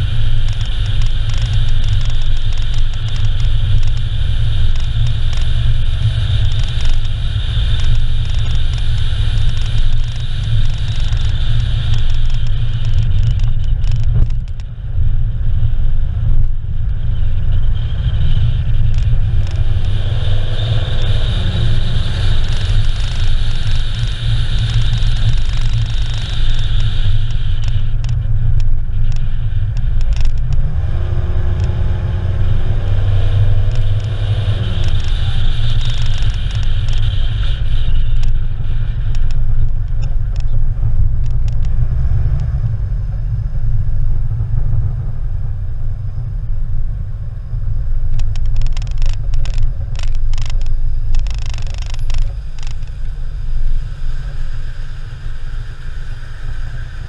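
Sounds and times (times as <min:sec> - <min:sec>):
sharp clicks and knocks: 0:00.0 - 0:14.8, 0:18.6 - 0:20.0, 0:22.2 - 0:30.7, 0:31.5 - 0:31.8, 0:33.6 - 0:37.3, 0:37.9 - 0:41.8, 0:48.1 - 0:53.0
car engine and road noise: 0:00.0 - 0:57.0.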